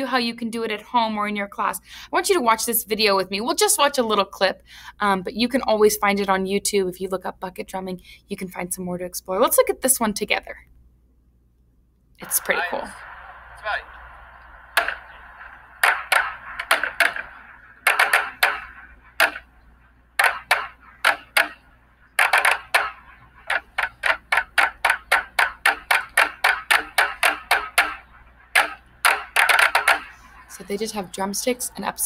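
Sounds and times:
drumsticks hitting plastic buckets: 14.7 - 19.6, 20.2 - 31.2.

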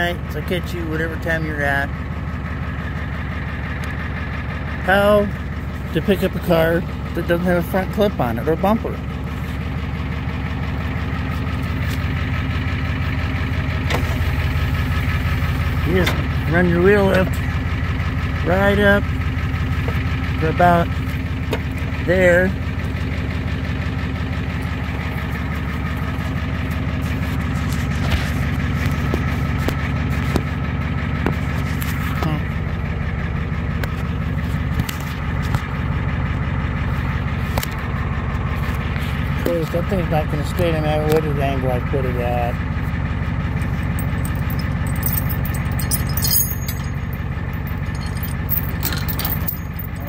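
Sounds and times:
truck engine idling: 0.0 - 50.0
chain links and hook clinking: 43.6 - 50.0.

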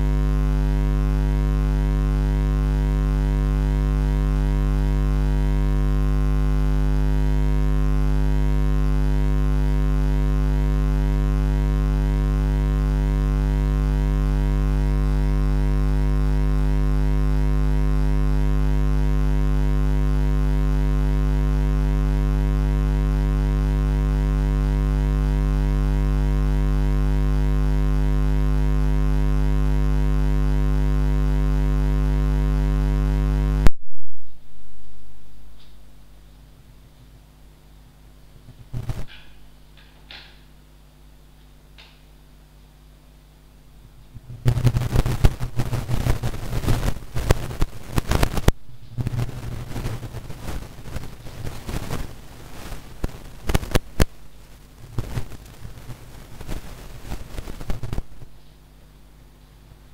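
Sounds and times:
loud low hum: 0.0 - 37.0.

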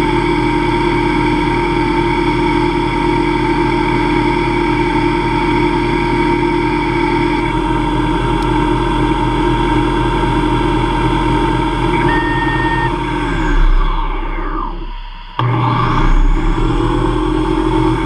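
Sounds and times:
lathe spindle motor whine: 1.0 - 18.0.

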